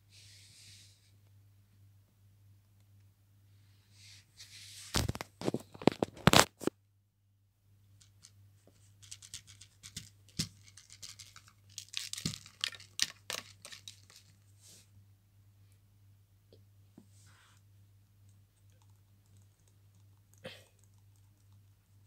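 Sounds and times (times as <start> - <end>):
faint low hum: 0.0 - 4.5, 13.5 - 22.0
plastic toys clicking and rustling: 9.0 - 14.4.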